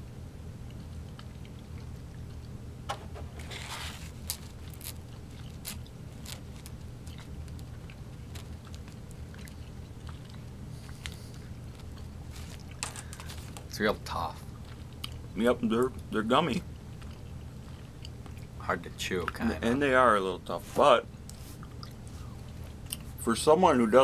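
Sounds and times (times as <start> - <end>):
steady low hum: 0.0 - 24.0
people chewing candy: 0.6 - 2.6, 3.6 - 20.0, 21.1 - 23.2.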